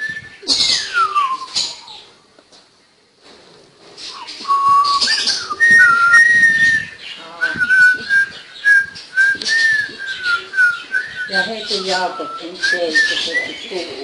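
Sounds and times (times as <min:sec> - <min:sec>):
person whistling: 0:00.0 - 0:01.6, 0:04.4 - 0:13.2.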